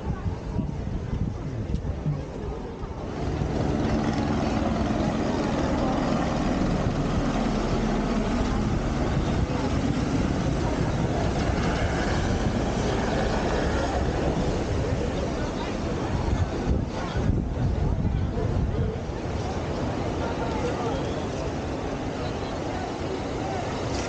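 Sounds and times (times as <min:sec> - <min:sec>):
helicopter engine and rotor drone: 0:02.9 - 0:16.6.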